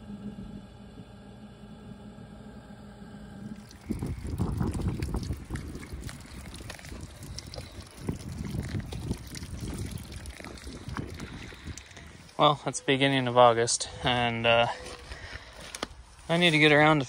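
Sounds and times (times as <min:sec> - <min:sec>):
low hum: 0:00.0 - 0:16.3
footsteps on wood chips: 0:14.0 - 0:17.0.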